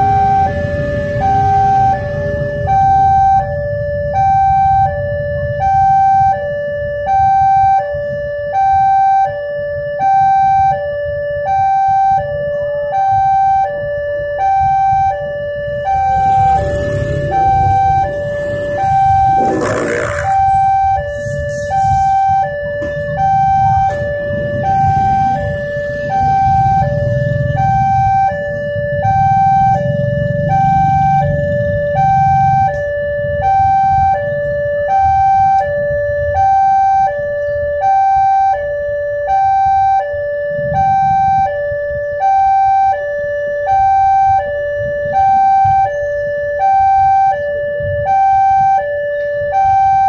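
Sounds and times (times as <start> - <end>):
two-tone crossing alarm: 0.0 - 50.0
vehicles idling: 15.7 - 22.1.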